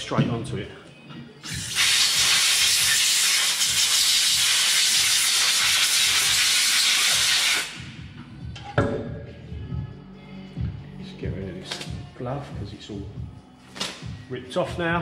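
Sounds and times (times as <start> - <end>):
compressed air blow gun hissing: 1.4 - 7.8.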